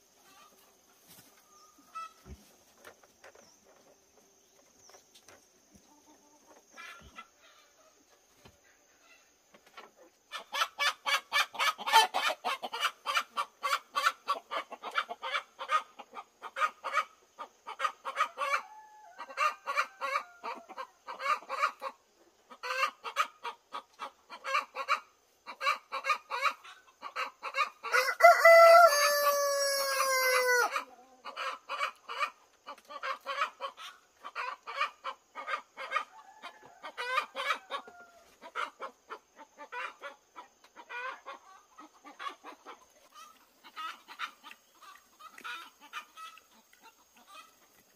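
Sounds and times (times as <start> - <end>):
chickens clucking: 0.0 - 47.9
rooster crowing: 18.5 - 20.6, 27.9 - 30.8.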